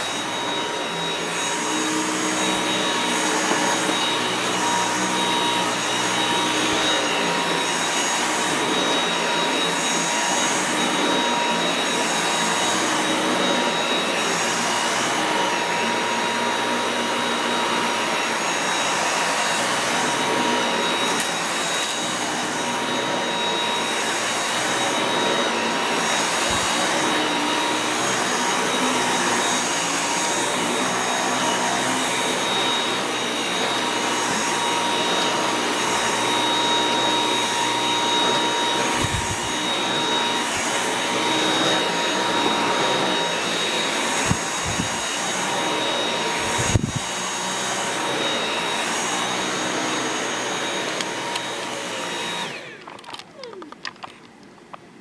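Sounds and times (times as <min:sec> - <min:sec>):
vacuum cleaner high whine: 0:00.0 - 0:55.0.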